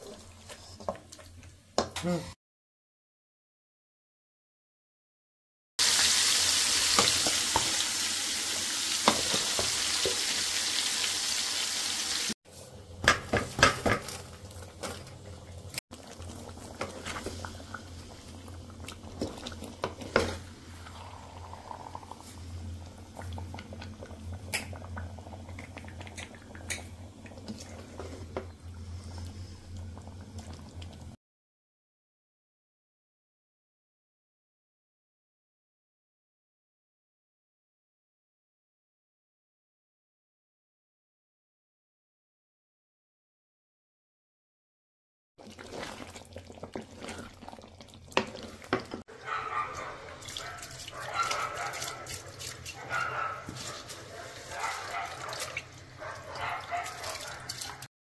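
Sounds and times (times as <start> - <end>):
food sizzling in a pot: 5.8 - 12.4, 15.7 - 22.7.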